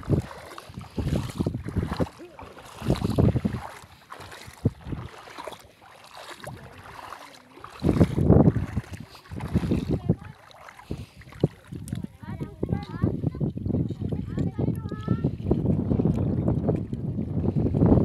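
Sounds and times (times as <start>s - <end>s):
shallow sea water washing: 0.0s - 18.0s
wind buffeting microphone: 0.0s - 18.0s.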